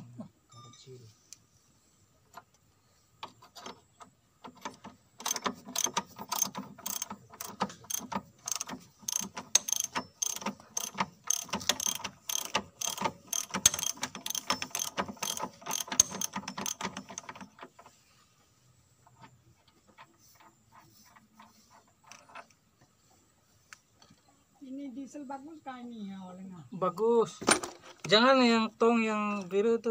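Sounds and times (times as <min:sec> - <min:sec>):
ratchet wrench clicking: 0:04.6 - 0:17.7.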